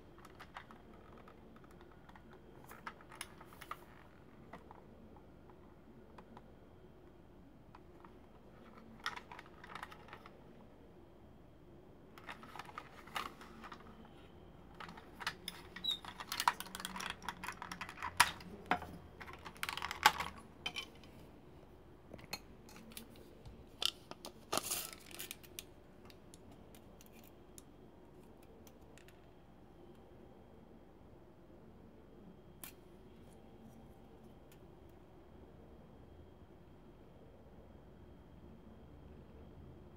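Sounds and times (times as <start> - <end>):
plastic toy parts clicking: 8.6 - 10.3, 14.8 - 20.9.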